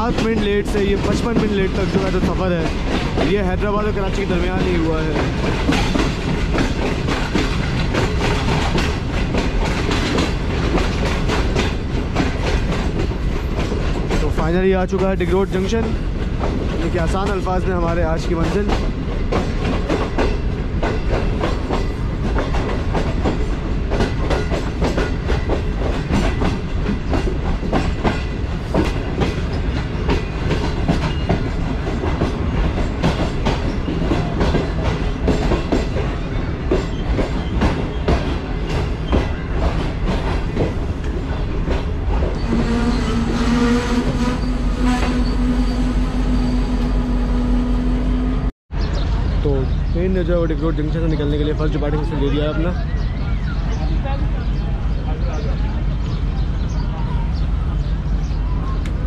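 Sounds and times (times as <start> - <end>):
train wheels clattering over rail joints: 0.0 - 45.5.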